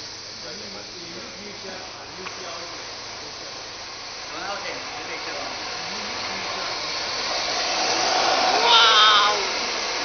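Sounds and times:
remote control cars whirring: 7.2 - 9.7.

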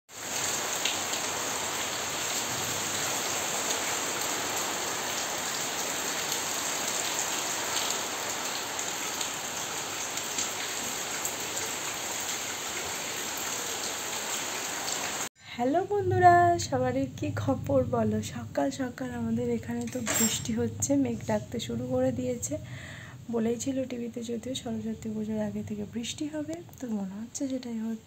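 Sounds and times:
rain on paving: 0.1 - 15.3
rain drop ticks: 0.4 - 1.3.

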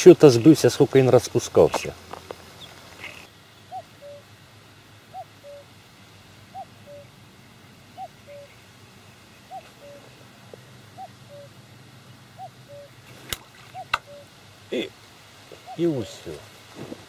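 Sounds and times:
distant bird two-note call: 13.7 - 14.3.

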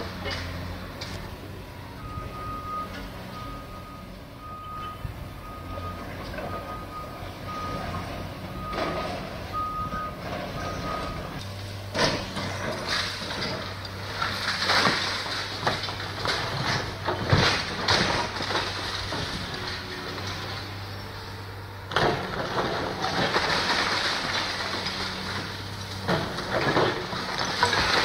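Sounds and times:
excavator diesel engine: 0.0 - 28.0
reversing alarm beeping: 1.9 - 11.4
concrete and brick crashing: 22.3 - 25.4, 26.1 - 28.0.

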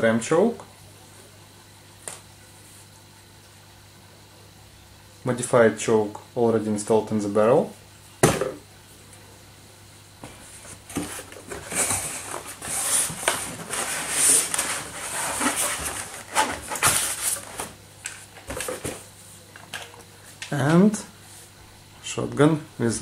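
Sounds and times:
foam and cardboard scraping: 10.2 - 17.8.

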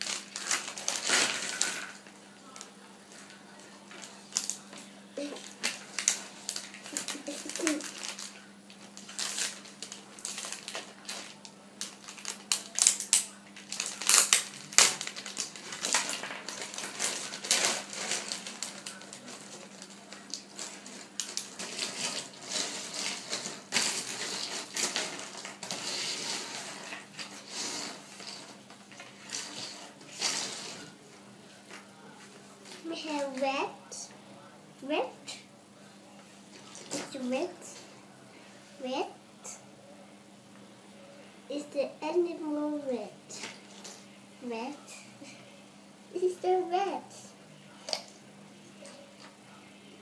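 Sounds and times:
plastic bag crinkling: 0.0 - 31.0.

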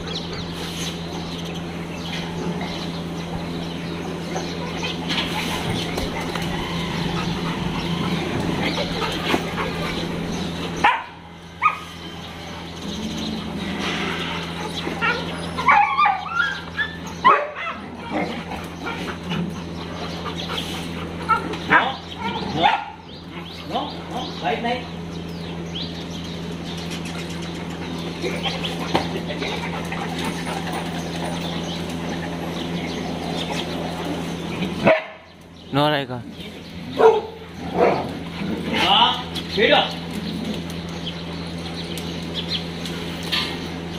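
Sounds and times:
low background hum: 0.0 - 43.9
small birds chirping: 0.0 - 43.9
dog barking: 10.8 - 11.9, 15.0 - 17.9, 21.3 - 23.0, 34.8 - 35.3, 37.0 - 38.1.

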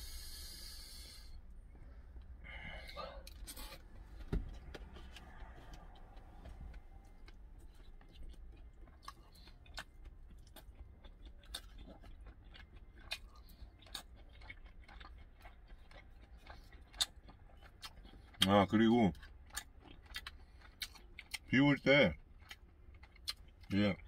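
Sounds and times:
low hum: 0.0 - 13.4
quiet chewing: 1.4 - 21.5, 22.2 - 24.0
dull thump: 4.3 - 4.6.

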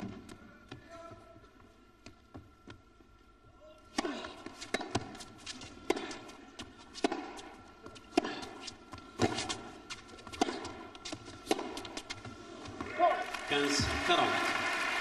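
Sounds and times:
rackets hitting tennis ball: 3.9 - 13.0.

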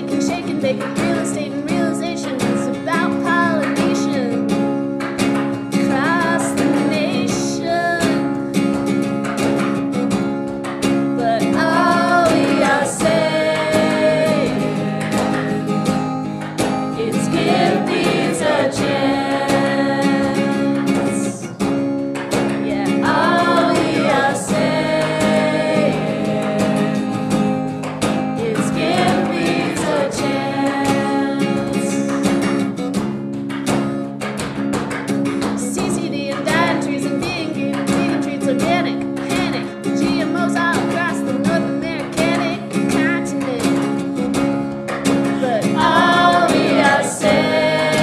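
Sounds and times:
strummed acoustic guitar: 0.0 - 48.0
group singing together: 11.4 - 16.2, 16.9 - 21.6, 22.6 - 32.7, 45.3 - 48.0.

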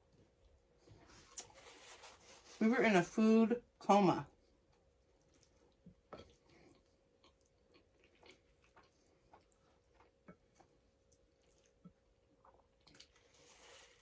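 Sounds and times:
wet chewing mouth sounds: 5.2 - 13.5.

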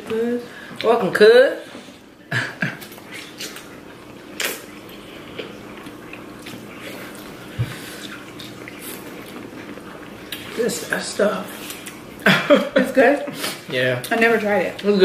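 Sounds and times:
wet chewing and mouth sounds: 2.7 - 12.2.

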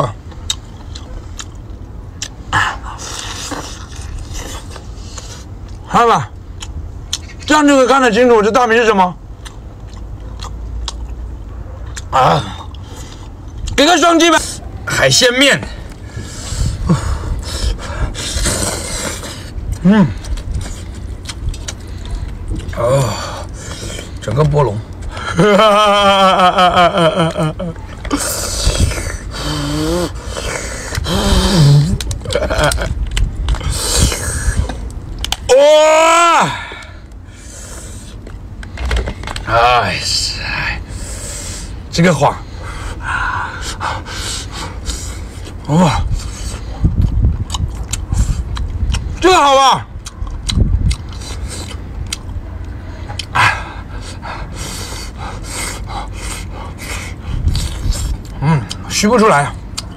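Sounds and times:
breathy mouth noises: 15.8 - 24.3, 27.8 - 32.3, 40.7 - 49.2, 50.0 - 58.9
man humming and exclaiming: 19.8 - 20.3, 22.7 - 23.5, 31.0 - 32.8, 35.5 - 37.0
low rumble: 49.9 - 58.9.

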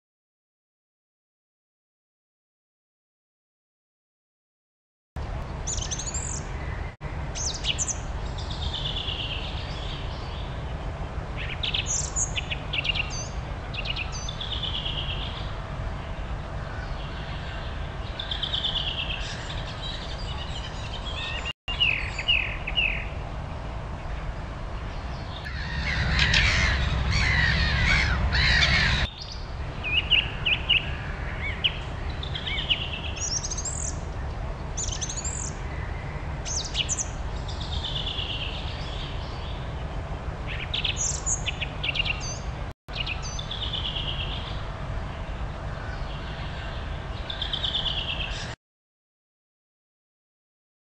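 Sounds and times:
birds singing and calling: 5.5 - 23.2, 24.0 - 48.6
low rumble: 23.2 - 32.3.

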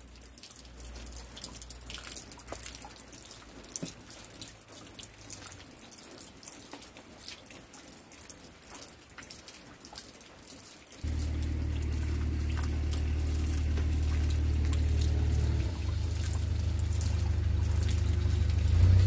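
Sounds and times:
rain drops dripping and ticking: 0.0 - 19.0
faint low hum: 11.1 - 19.0.

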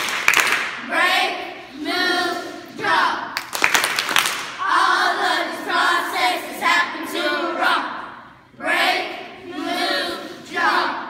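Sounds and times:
sharp hand claps: 0.0 - 0.8, 3.4 - 4.6
children singing in unison: 0.8 - 3.2, 4.6 - 11.0.

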